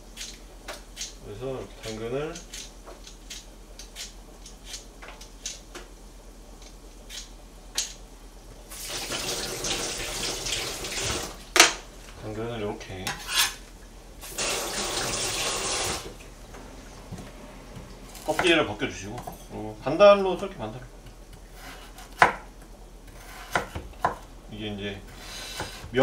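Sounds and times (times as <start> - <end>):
kitchen tap running: 8.7 - 11.5, 14.2 - 16.3.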